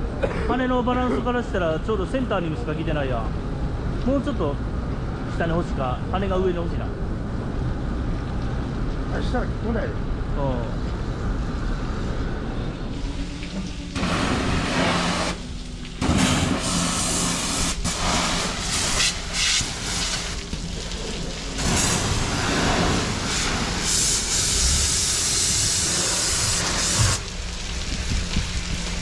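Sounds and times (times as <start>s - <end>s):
steady low hum: 0.0s - 29.0s
pressure washer spraying hull: 12.9s - 29.0s.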